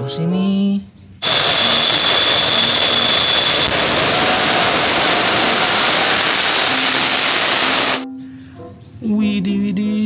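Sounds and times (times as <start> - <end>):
jet engines roaring: 1.2 - 8.0.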